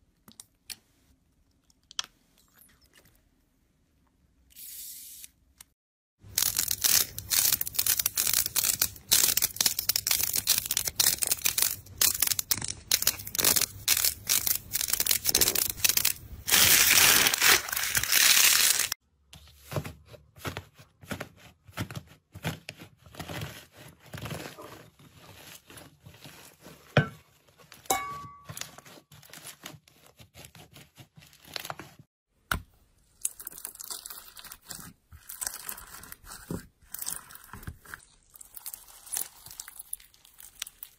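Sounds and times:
beaded slime crunching: 6.3s - 19.0s, 33.2s - 40.9s.

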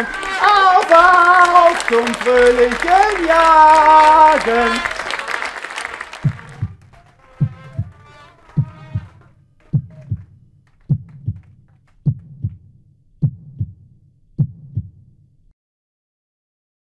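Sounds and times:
music sting: 1.4s - 9.3s
heartbeat thumps: 6.2s - 15.2s.

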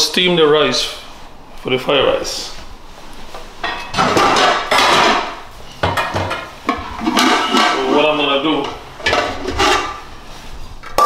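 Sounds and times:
bowls and dishes clattering: 3.6s - 10.1s.

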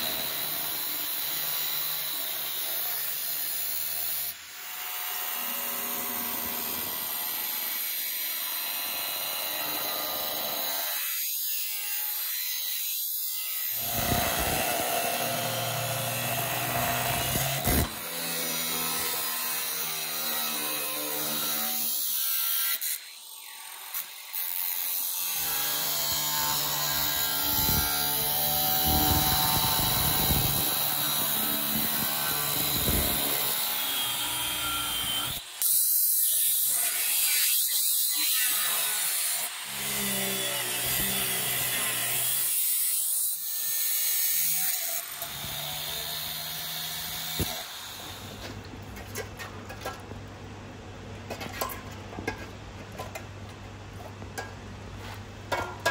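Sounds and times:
sawing of material: 0.0s - 48.6s
power tool motor hum: 13.7s - 19.2s.

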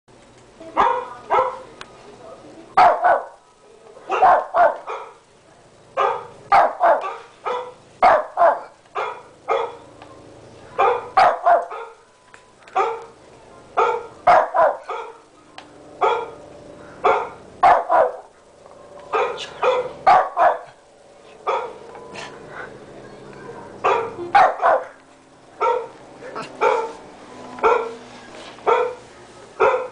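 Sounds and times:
small dog barking: 0.8s - 1.7s, 2.8s - 3.4s, 4.1s - 5.2s, 6.0s - 9.9s, 10.7s - 12.0s, 12.8s - 13.2s, 13.8s - 15.2s, 16.0s - 16.4s, 17.0s - 18.3s, 19.1s - 20.8s, 21.4s - 21.8s, 23.8s - 25.0s, 25.6s - 27.0s, 27.6s - 28.0s, 28.6s - 29.0s, 29.6s - 29.9s.

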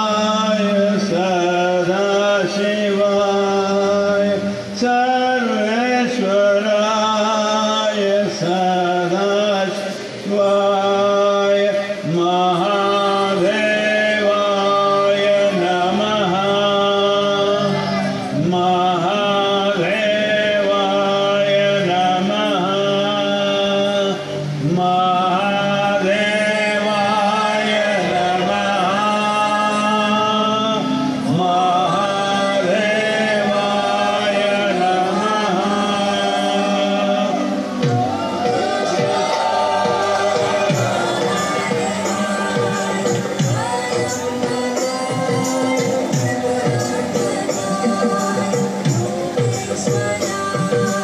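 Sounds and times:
man singing a chant: 0.0s - 37.7s.

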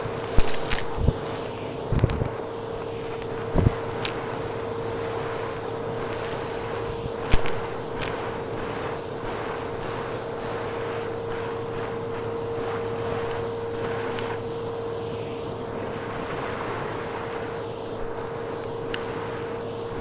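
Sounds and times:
debris crackling up hose: 0.0s - 20.0s
vacuum cleaner running: 0.0s - 20.0s.

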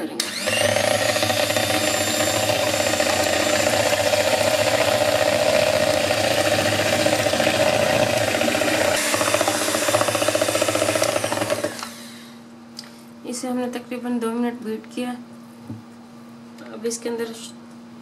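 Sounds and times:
electric hand mixer running: 0.0s - 12.3s.

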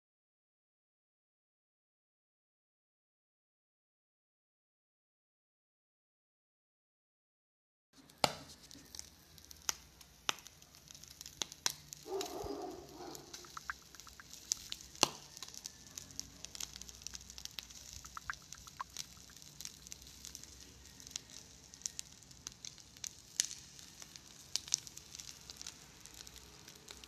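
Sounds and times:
fire crackling and popping: 8.0s - 27.0s
meat sizzling on charcoal grill: 8.0s - 27.0s.

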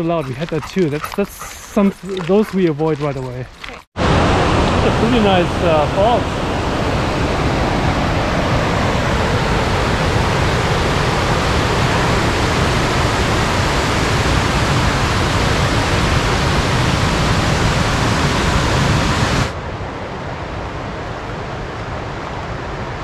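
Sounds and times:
waterfall rushing over rocks: 4.0s - 7.3s.

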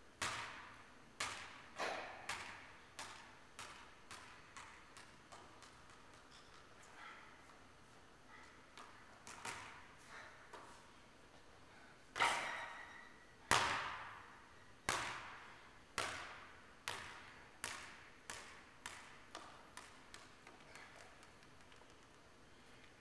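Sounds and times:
basketball bouncing on gym floor: 0.2s - 7.6s, 8.7s - 9.9s, 13.5s - 22.2s.

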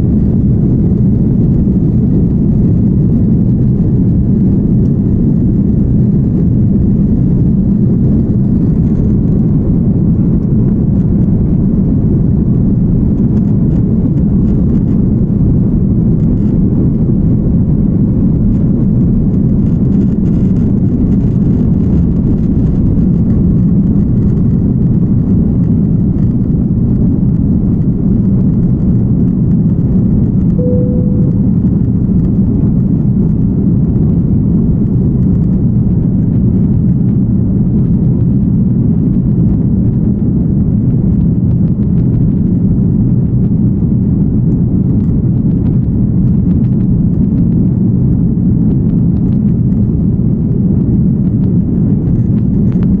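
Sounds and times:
airliner cabin rumble: 0.0s - 53.0s
short single tone: 30.6s - 32.0s.

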